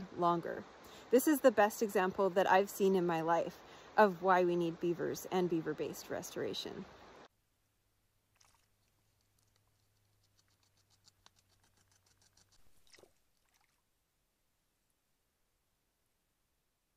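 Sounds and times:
beaver gnawing on a stick: 8.3 - 13.0.

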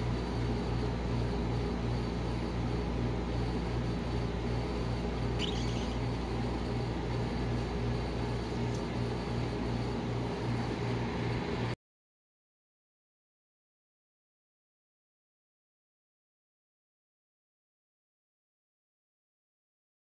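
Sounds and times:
refrigeration unit humming: 0.0 - 11.8.

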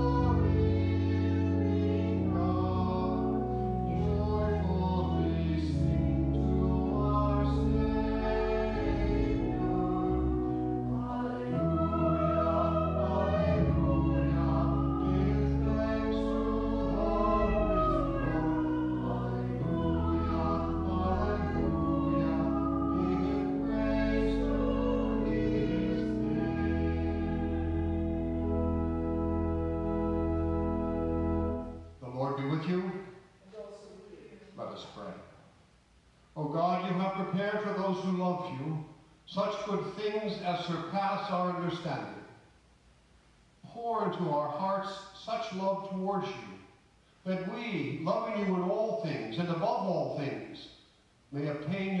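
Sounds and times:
small group singing in parts: 0.0 - 29.2
organ chords: 0.0 - 33.2.

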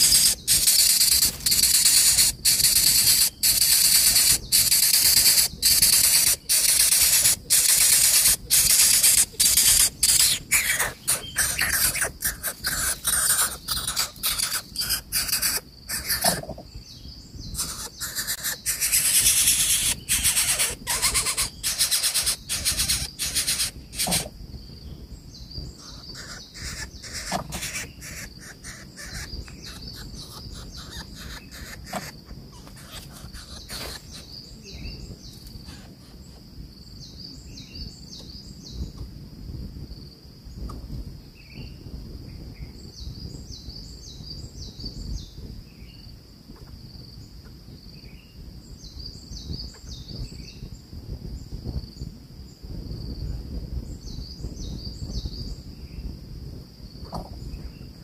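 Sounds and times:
scratchy rasping from dry nest: 0.0 - 16.6, 17.6 - 24.3, 25.9 - 34.3
faint chirps: 0.0 - 39.0
insects droning: 0.0 - 58.0.

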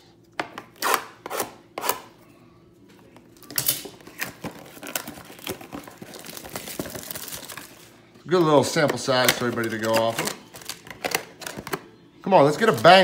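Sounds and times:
foil wrapper rustling: 3.9 - 8.4, 9.1 - 11.6.

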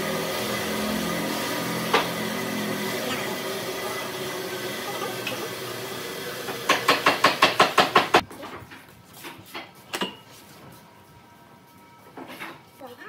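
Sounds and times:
sharp knocks: 6.6 - 8.2.

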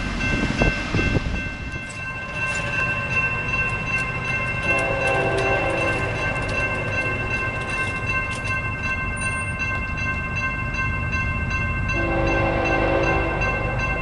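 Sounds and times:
crossing warning bell ringing: 0.0 - 14.0
train rumble: 0.0 - 14.0
multi-chime train horn: 2.1 - 8.4, 11.9 - 14.0.

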